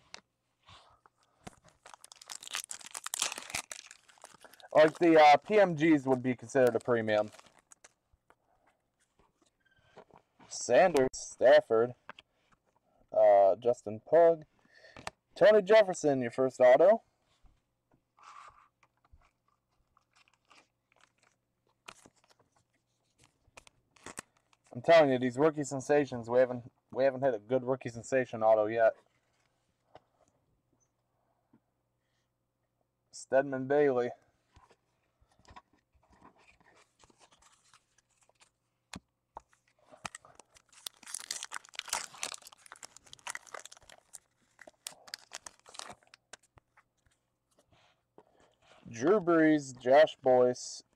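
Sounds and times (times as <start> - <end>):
cards rustling: 1.0 - 8.0, 35.4 - 38.6, 39.4 - 47.6
foil wrapper tearing and crinkling: 1.6 - 5.5, 6.6 - 8.0, 40.0 - 46.5.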